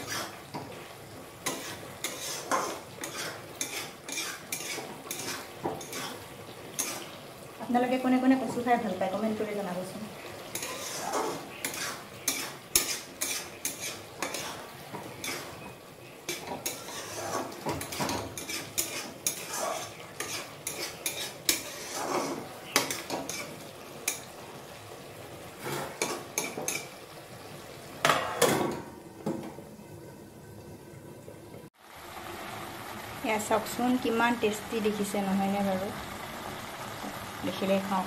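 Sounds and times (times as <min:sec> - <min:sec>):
metal spatula scraping a wok: 0:00.0 - 0:00.6, 0:01.4 - 0:07.2, 0:10.5 - 0:24.3, 0:25.6 - 0:26.9.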